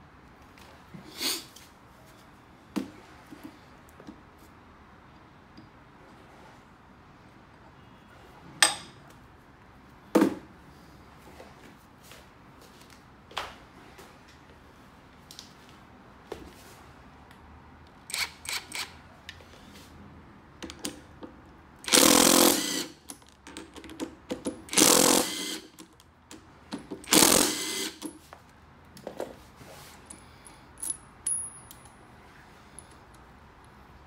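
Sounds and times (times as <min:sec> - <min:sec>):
impact driver running: 0:21.9 - 0:23.0, 0:24.7 - 0:25.7, 0:27.0 - 0:28.1.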